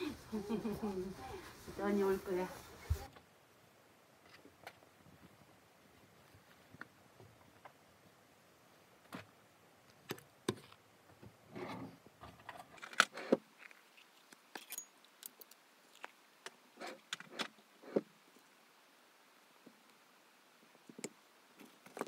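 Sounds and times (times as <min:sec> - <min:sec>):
cloth rustling: 0:00.0 - 0:03.1
plastic case opening and closing: 0:11.6 - 0:13.4.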